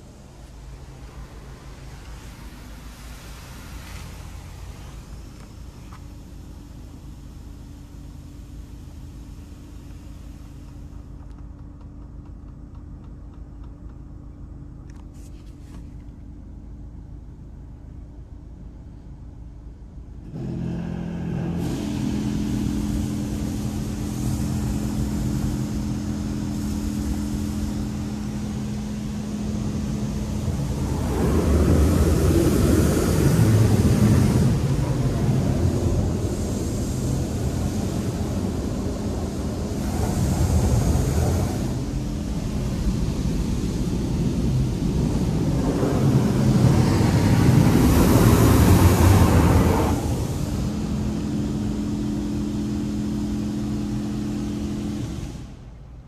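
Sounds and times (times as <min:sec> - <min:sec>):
water spray hitting car: 0:00.0 - 0:12.6, 0:20.4 - 0:55.8
machine hum: 0:15.9 - 0:56.0
motor starting with loud hum: 0:20.3 - 0:55.6.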